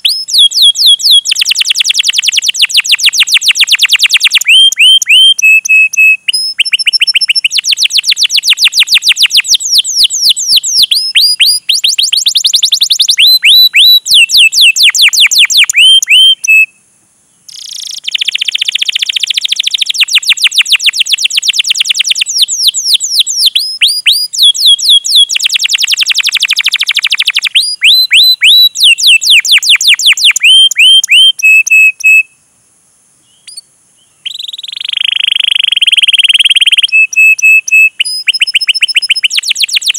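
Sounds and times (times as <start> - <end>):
canary singing: 0.0 - 16.7, 17.5 - 32.3, 33.3 - 39.9.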